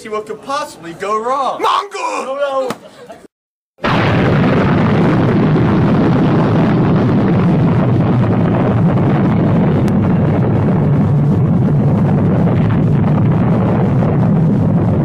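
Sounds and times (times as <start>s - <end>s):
explosion rumble: 3.8s - 15.0s.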